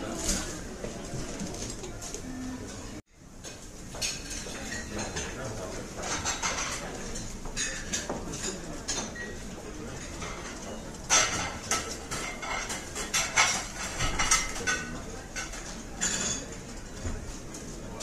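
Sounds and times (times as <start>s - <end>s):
cutlery and crockery clinking: 3.4s - 5.4s, 6.0s - 17.2s.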